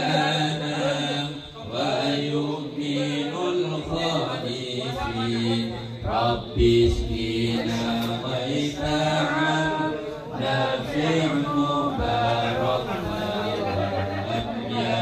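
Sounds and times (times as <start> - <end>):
men chanting: 0.0 - 15.0.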